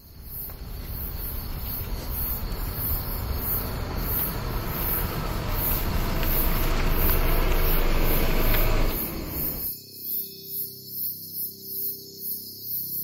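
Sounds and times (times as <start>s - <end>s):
car approaching on road: 0.0s - 9.7s.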